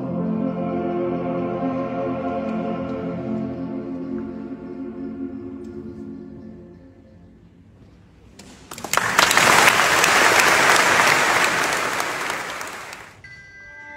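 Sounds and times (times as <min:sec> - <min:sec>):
male vocal ensemble chord: 0:00.0 - 0:07.1
audience applause: 0:08.7 - 0:13.2.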